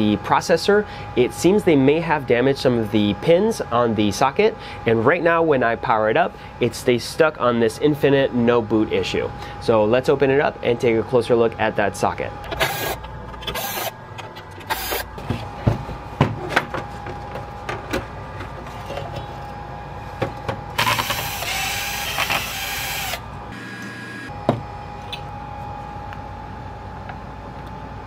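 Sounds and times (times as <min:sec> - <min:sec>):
cordless drill running: 0:12.6 - 0:13.9, 0:14.7 - 0:15.1, 0:20.8 - 0:24.3.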